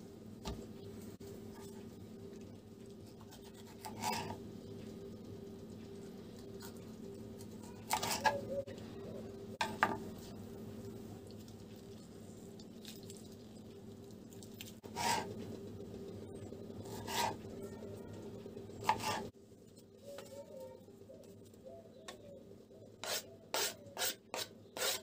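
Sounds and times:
steady low hum: 0.0s - 25.0s
knife cutting on plastic board: 18.8s - 19.3s.

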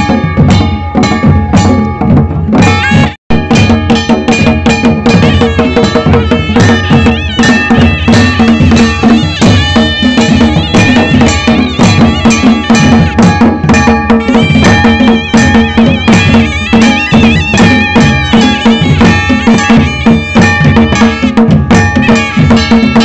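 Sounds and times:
fast dense drumming: 0.0s - 23.0s
high reed wind instrument: 5.0s - 21.4s.

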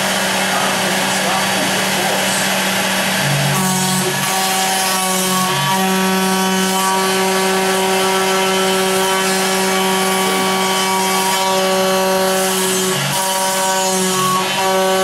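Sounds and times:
cutter milling timber hiss: 0.0s - 4.8s
dust extraction running: 0.0s - 15.0s
router spindle whine: 0.0s - 15.0s.

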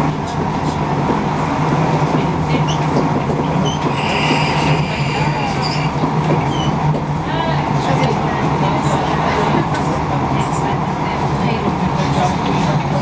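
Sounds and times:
train rumble and hum: 0.0s - 13.0s
wheels squealing on rails: 2.5s - 6.8s.

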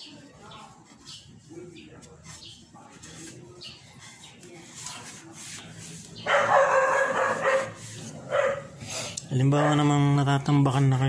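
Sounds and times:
dog barking: 6.2s - 8.7s, 9.5s - 10.0s.

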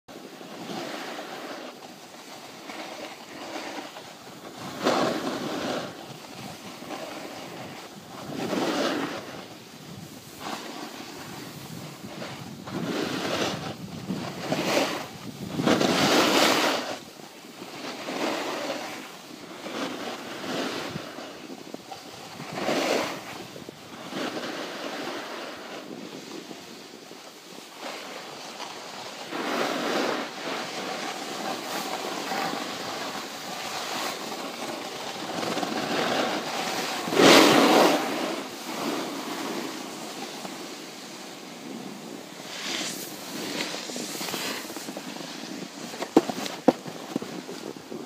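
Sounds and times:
snowboards scraping on snow: 0.1s - 48.0s
wind buffeting microphone: 4.4s - 17.2s.

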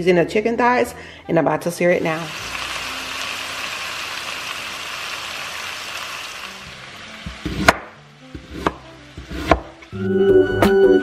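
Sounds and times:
chicken sizzling in a pan: 1.9s - 10.0s
knife chopping onion on board: 7.4s - 9.8s.

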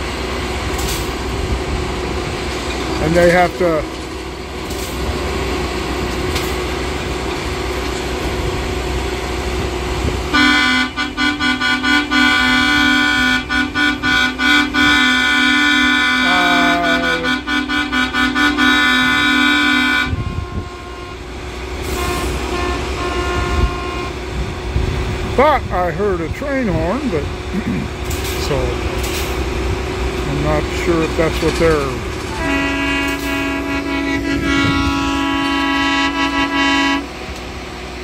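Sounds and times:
low rumble of idling machines: 0.0s - 38.0s
locomotive air horn blasts: 10.3s - 24.2s, 31.4s - 37.2s.

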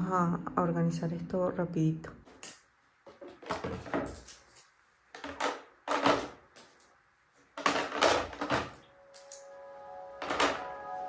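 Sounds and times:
plastic clothespins clattering: 2.3s - 9.4s.

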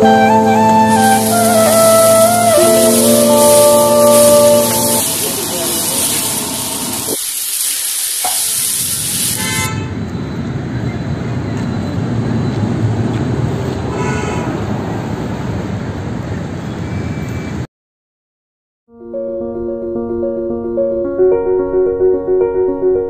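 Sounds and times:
griddle sizzling: 0.0s - 9.8s
traffic rumble: 8.8s - 17.7s
car horn toots: 9.4s - 10.0s.

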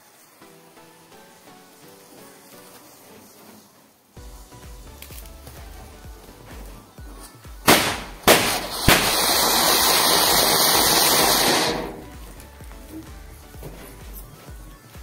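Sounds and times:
firework fountain hissing: 0.0s - 15.0s
sharp cracks: 7.6s - 12.5s.

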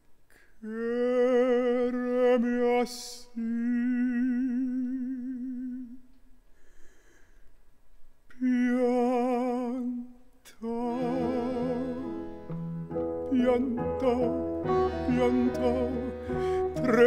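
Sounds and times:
baritone singing with vibrato: 0.6s - 6.0s, 8.3s - 17.0s
instruments playing low notes: 10.9s - 17.0s.

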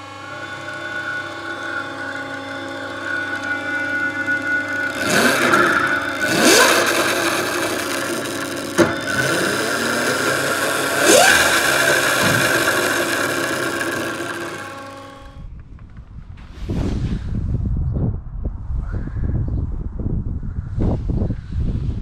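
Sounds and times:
electric motors whining: 0.0s - 15.5s.

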